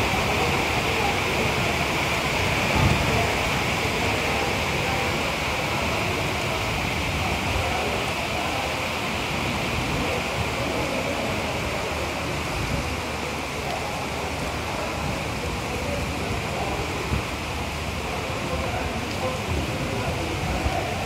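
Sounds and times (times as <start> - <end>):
heavy rain falling: 0.0 - 21.0.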